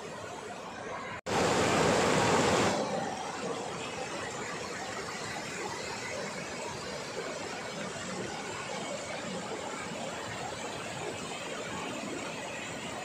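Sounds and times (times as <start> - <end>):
stream rushing over rock: 1.3 - 13.0.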